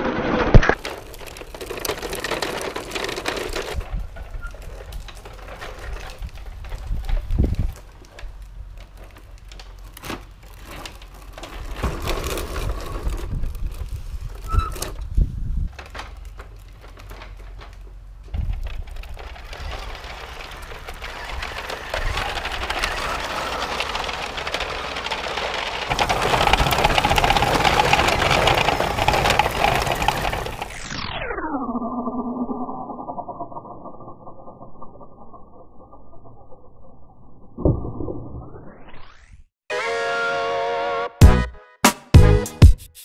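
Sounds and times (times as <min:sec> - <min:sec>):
toy trucks rolling over paving: 0:00.0 - 0:31.3.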